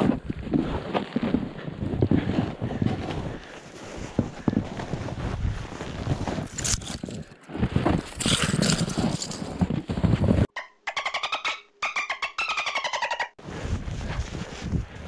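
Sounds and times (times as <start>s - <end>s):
footsteps crunching through snow: 0.0s - 10.5s.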